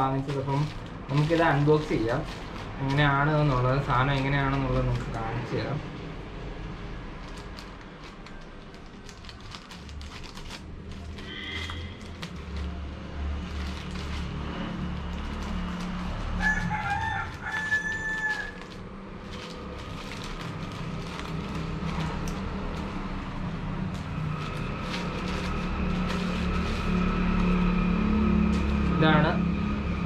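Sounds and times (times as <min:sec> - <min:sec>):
scissors cutting plastic bag: 0:00.0 - 0:05.5, 0:07.2 - 0:29.2
rooster crowing: 0:16.2 - 0:18.8.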